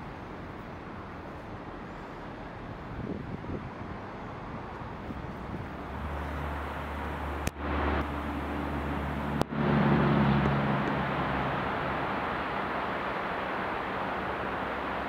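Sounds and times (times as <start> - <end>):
train locomotive engine hum: 0.0 - 15.0.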